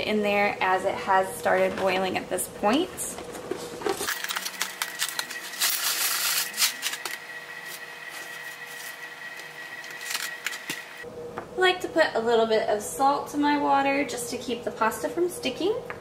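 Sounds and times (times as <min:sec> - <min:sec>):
kitchen clicking and rattling: 0:03.8 - 0:07.0.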